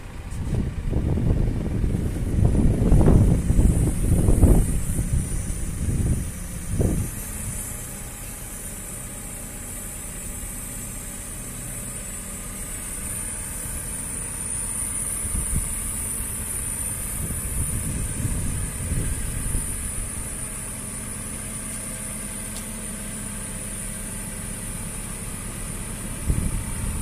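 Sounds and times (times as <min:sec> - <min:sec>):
wind buffeting microphone: 0:00.0 - 0:08.2, 0:15.1 - 0:20.7, 0:26.1 - 0:27.0
diesel engine idling: 0:00.0 - 0:27.0.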